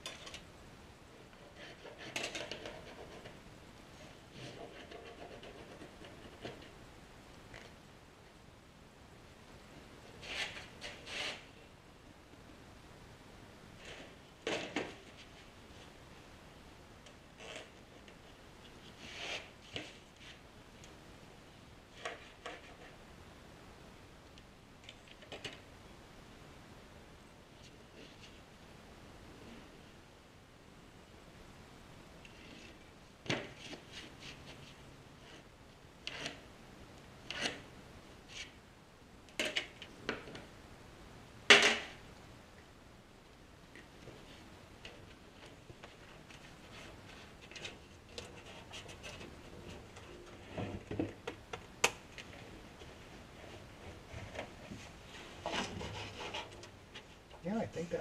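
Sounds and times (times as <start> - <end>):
pencil scraping on cardboard: 4.0 - 6.7, 55.4 - 56.6.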